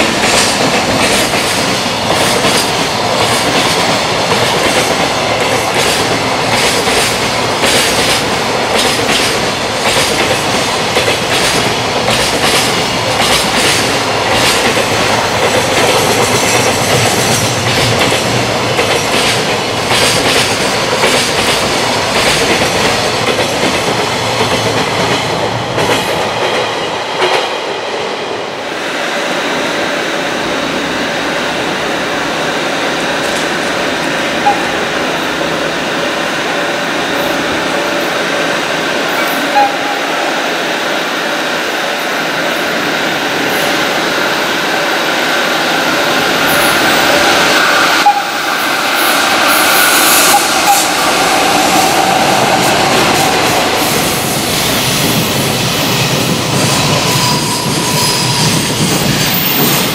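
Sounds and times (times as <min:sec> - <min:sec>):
train wheels clattering: 0:00.0 - 0:27.6, 0:45.2 - 0:59.9.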